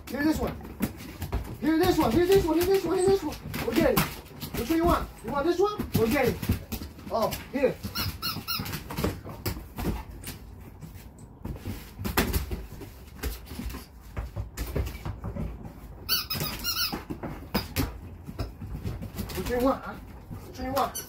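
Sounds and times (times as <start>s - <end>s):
squeaky toy squeaking: 7.8s - 9.0s, 16.0s - 17.1s, 20.8s - 21.0s.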